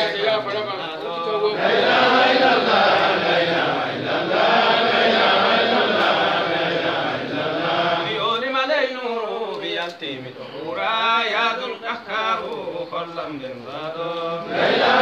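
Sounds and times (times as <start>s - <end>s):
group religious chanting: 0.0s - 0.5s, 1.4s - 9.4s, 10.4s - 15.0s.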